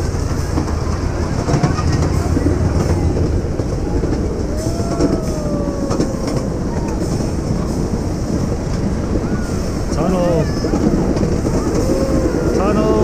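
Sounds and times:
railway cars rumbling on track: 0.0s - 13.0s
wheels clickety-clack: 0.0s - 13.0s.

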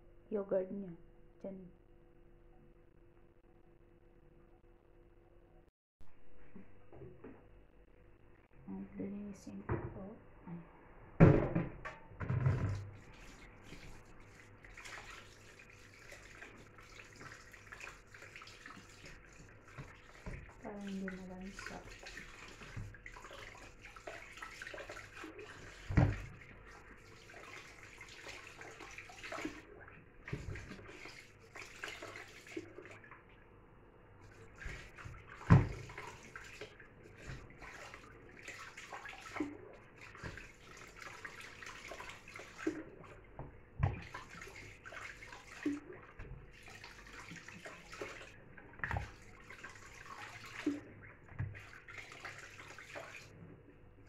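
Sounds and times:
tap running into plastic basin: 11.2s - 13.0s, 25.7s - 26.5s, 34.6s - 36.5s.

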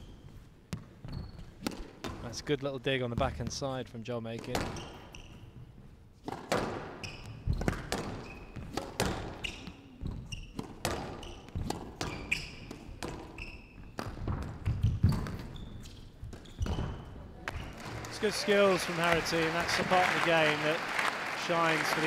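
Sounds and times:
shoes squeaking on court floor: 0.0s - 2.3s, 4.4s - 18.2s
squash ball hitting rackets and walls: 0.7s - 2.3s, 4.4s - 5.3s, 6.2s - 18.0s.

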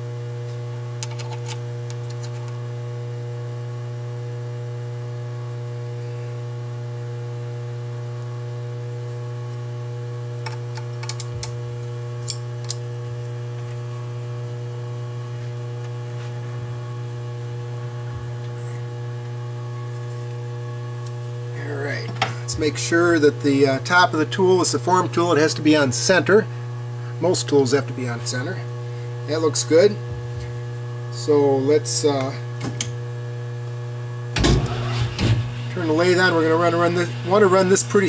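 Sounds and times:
low electrical hum: 0.0s - 38.0s.

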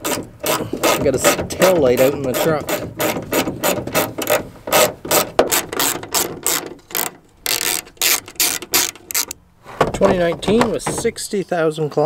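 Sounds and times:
ratcheting screwdriver clicking: 5.1s - 9.4s.

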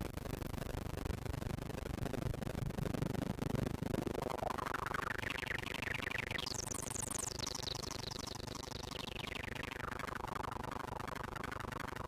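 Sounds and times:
synth filter sweep whistling: 5.4s - 11.0s.

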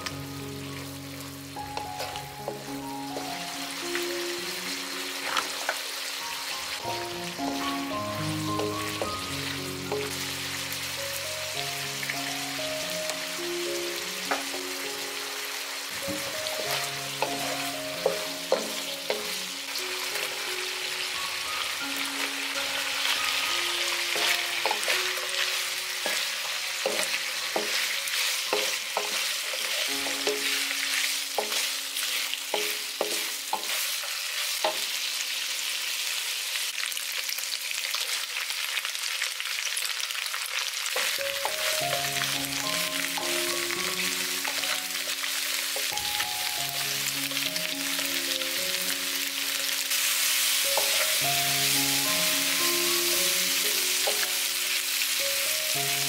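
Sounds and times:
food sizzling in hot oil: 0.0s - 56.0s
wooden spatula knocking pan: 17.2s - 19.4s, 26.0s - 30.6s, 31.4s - 31.8s, 32.5s - 33.8s.

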